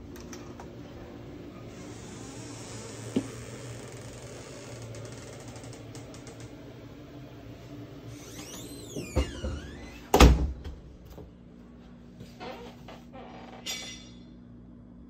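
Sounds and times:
steady low hum: 0.0 - 15.0
door squeaking: 1.7 - 6.4, 8.1 - 10.3, 12.4 - 13.8.

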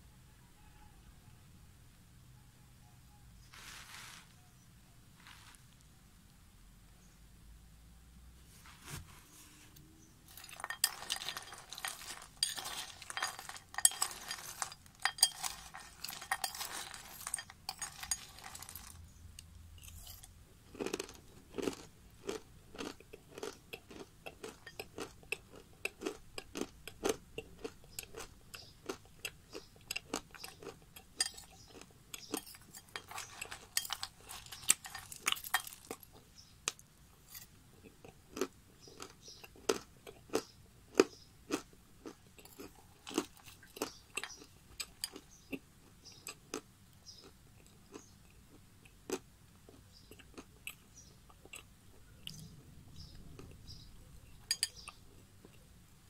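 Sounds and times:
crunching and chewing clay: 10.3 - 55.8.

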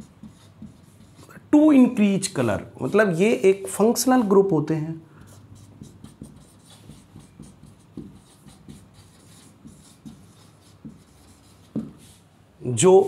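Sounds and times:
marker pen writing on whiteboard: 0.0 - 4.4, 5.2 - 12.3.

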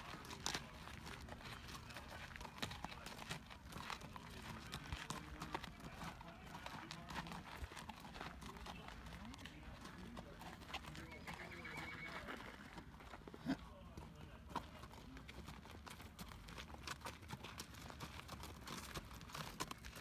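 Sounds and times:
footsteps on gravel: 0.0 - 11.0.

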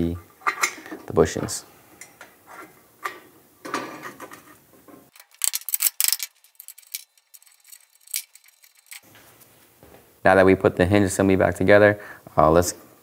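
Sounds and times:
metal parts rubbing and sliding: 4.1 - 9.1
sharp metallic clicks: 5.2 - 9.0.

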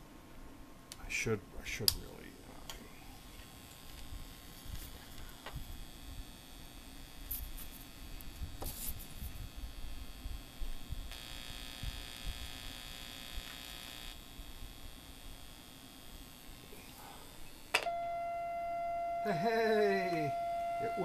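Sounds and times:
steady electronic tone: 9.3 - 21.0.

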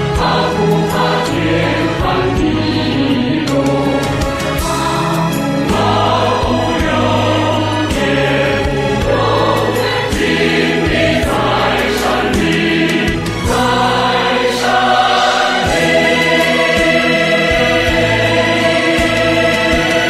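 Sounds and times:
large choir singing: 0.0 - 20.0.

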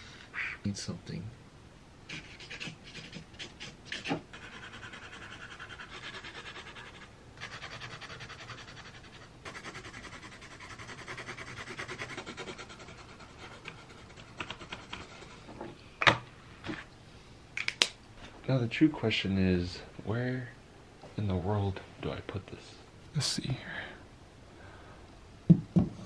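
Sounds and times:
marker scribbling on canvas: 2.1 - 15.5.

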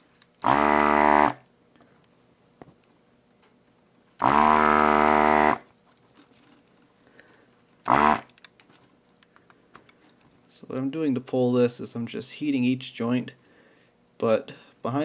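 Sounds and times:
desoldering pump buzzing: 0.4 - 1.5, 4.2 - 5.7, 7.8 - 8.4.

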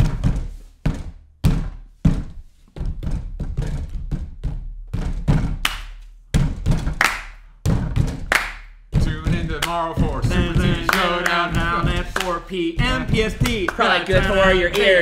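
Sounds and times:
fists pounding on table: 0.0 - 12.2, 12.8 - 14.9
people clapping: 5.6 - 5.9, 7.0 - 7.4, 8.2 - 8.7, 9.4 - 15.0.

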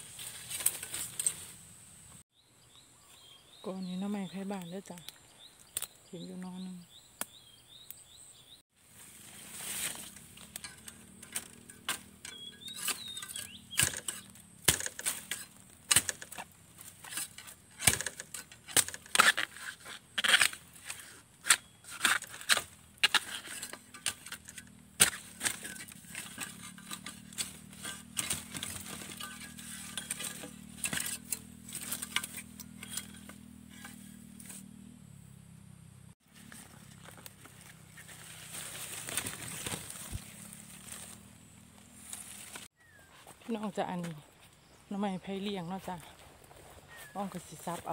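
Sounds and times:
chopping bamboo knocks: 12.8 - 19.5.

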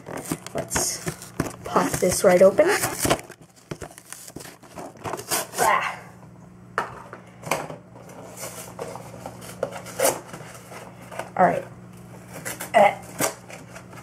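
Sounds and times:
cardboard box being torn open: 0.1 - 5.6.

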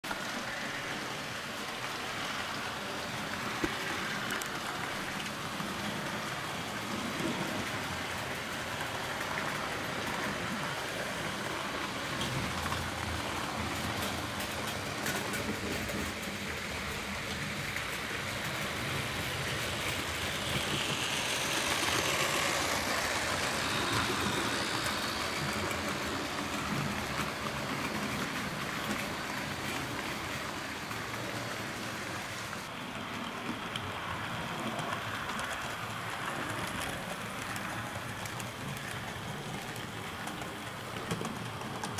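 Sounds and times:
model train wheels rattling: 3.1 - 34.1.

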